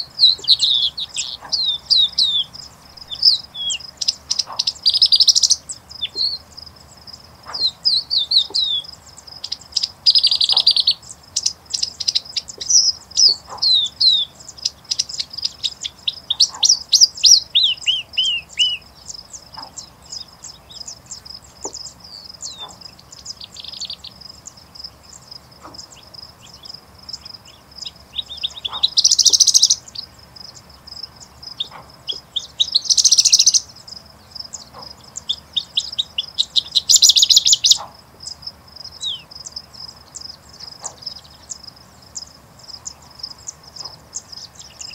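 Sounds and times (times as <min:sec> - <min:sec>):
bird singing chirps and whistles: 0:00.0 - 0:06.4, 0:07.5 - 0:24.1, 0:31.6 - 0:33.8, 0:34.6 - 0:37.9, 0:39.0 - 0:39.3.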